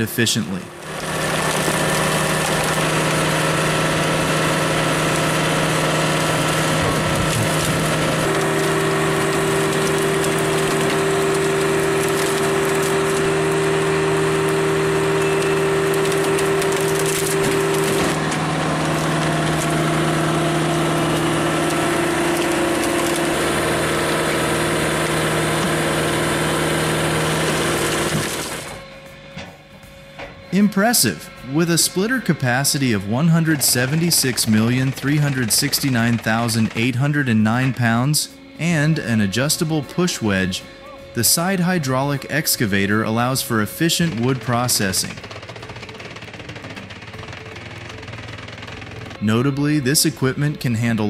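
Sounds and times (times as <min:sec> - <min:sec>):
diesel engine droning: 0:00.0 - 0:51.0
wood cracking: 0:00.7 - 0:28.8, 0:33.4 - 0:38.0, 0:43.2 - 0:49.3.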